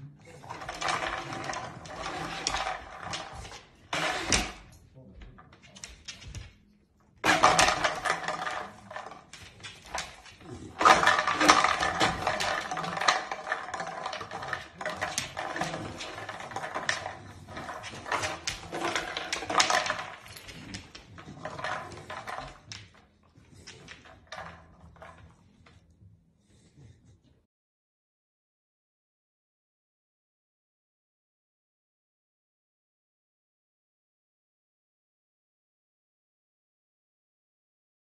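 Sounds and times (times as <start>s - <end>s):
plastic bottle clattering: 7.2s - 22.6s.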